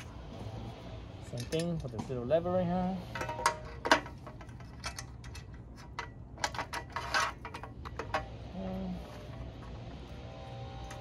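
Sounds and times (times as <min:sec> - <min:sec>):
metal clicks and clinks of tire changer: 0:01.3 - 0:02.0, 0:03.1 - 0:08.3.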